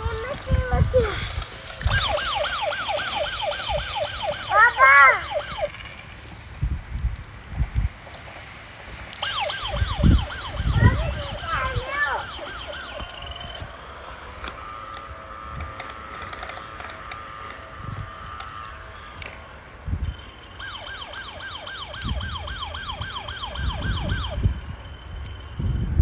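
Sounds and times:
warbling toy siren: 0:00.0 - 0:06.1, 0:09.1 - 0:25.9
steady electronic tone: 0:09.1 - 0:21.4.

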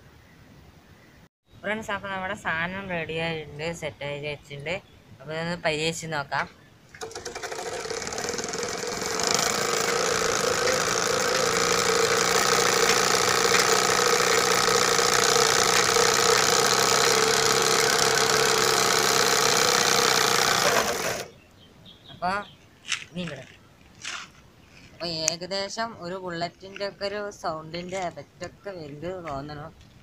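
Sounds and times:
bicycle exhaust buzzing: 0:07.0 - 0:21.4.

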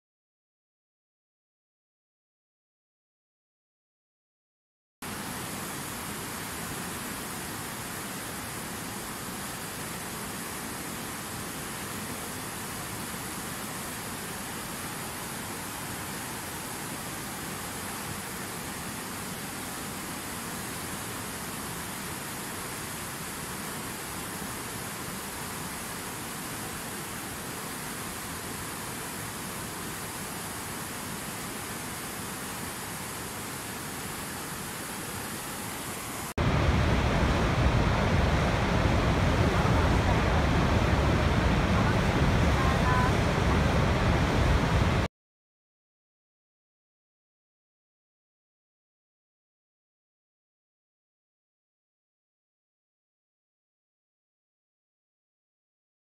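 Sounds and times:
river rushing over rocks: 0:05.0 - 0:45.1.

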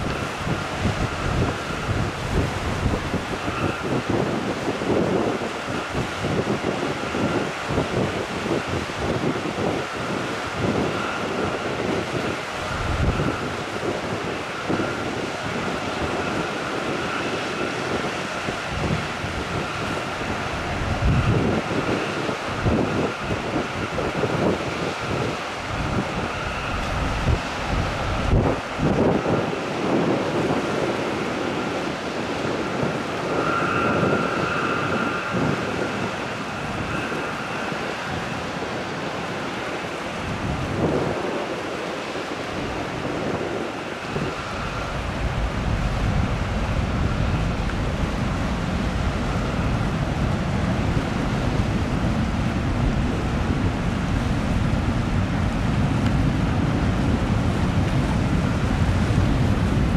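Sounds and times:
faint steady whine: 0:00.0 - 0:59.9
ferry engine rumble: 0:00.0 - 0:59.9
water wash of ship wake: 0:00.0 - 0:59.9
wind buffeting microphone: 0:00.0 - 0:59.9.

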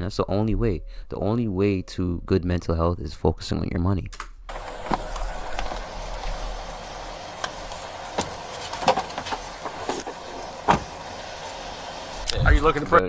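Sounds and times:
car door shutting: 0:04.5 - 0:12.3
outdoor hiss: 0:04.5 - 0:13.0.

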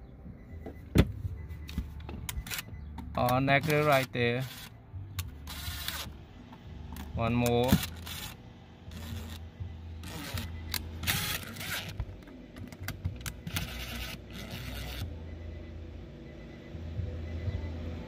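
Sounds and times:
cordless driver spinning: 0:03.6 - 0:06.1, 0:07.7 - 0:09.4, 0:10.0 - 0:12.0, 0:12.9 - 0:15.0.

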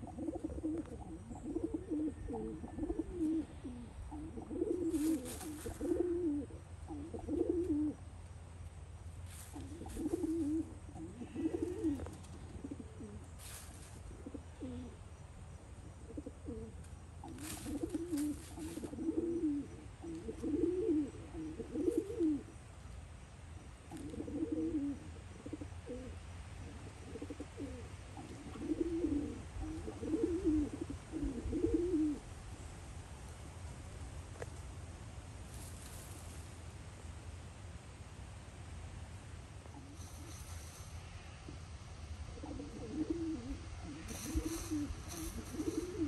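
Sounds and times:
dry leaves crackling: 0:04.5 - 0:07.8, 0:08.7 - 0:14.8, 0:16.8 - 0:22.0, 0:35.3 - 0:36.8, 0:43.8 - 0:46.0.

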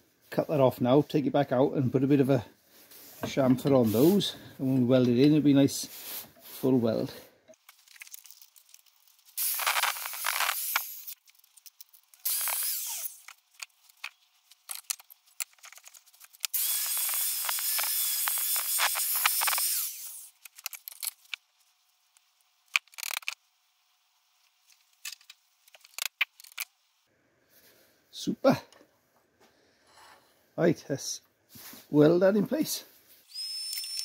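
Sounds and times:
angle grinder cutting steel: 0:12.2 - 0:13.3, 0:16.5 - 0:20.3.

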